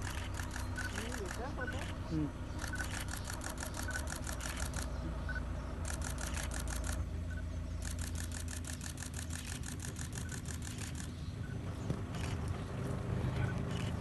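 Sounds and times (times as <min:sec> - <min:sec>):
camera shutters firing rapidly: 0:00.0 - 0:02.0, 0:02.6 - 0:04.9, 0:05.8 - 0:07.0, 0:07.8 - 0:11.2
steady low rumble: 0:00.0 - 0:14.0.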